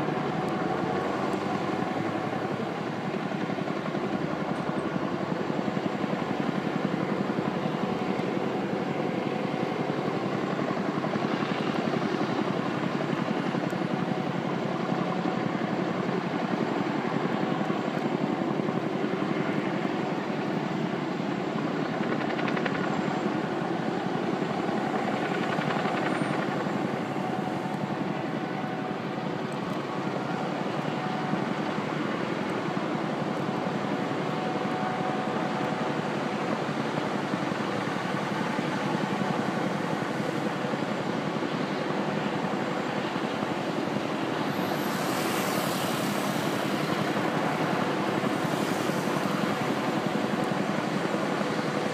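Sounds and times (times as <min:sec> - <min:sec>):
helicopter rotor beat: 0:00.0 - 0:51.9.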